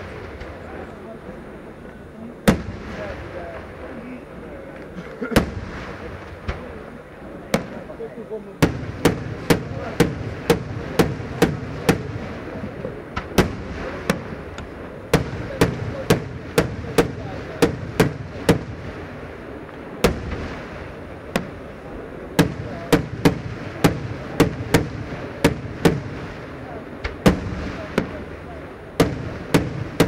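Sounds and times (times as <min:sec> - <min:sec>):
firework shells bursting: 0:22.4 - 0:30.0.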